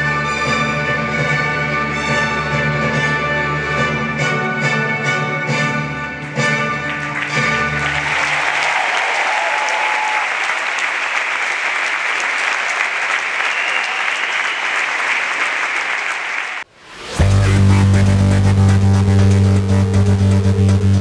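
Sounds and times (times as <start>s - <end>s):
audience applauding: 6.6s - 16.7s
electronic music with heavy bass: 17.1s - 21.0s.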